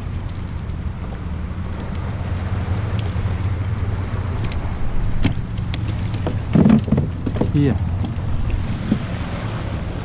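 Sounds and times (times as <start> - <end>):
wind buffeting microphone: 0.0 - 10.0
light clicks: 0.1 - 2.1, 4.3 - 6.9.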